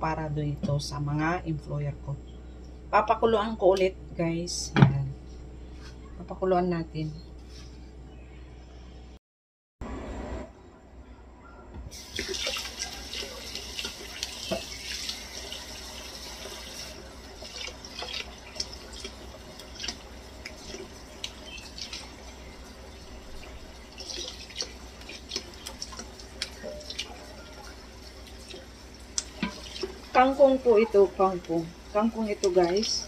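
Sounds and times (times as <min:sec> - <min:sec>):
water splashing: 0:12.0 - 0:33.0
stems knocking and rustling: 0:23.4 - 0:30.2
tap running into bowl: 0:29.2 - 0:30.1.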